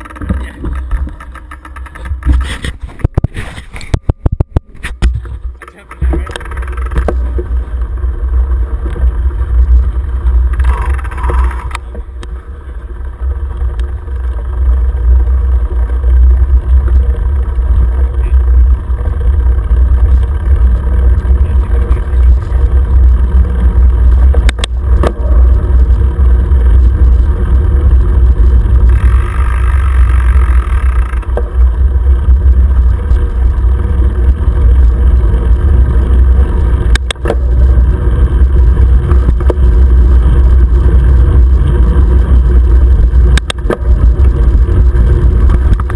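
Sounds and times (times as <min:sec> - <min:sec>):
bike rattling: 0:00.0 - 0:45.9.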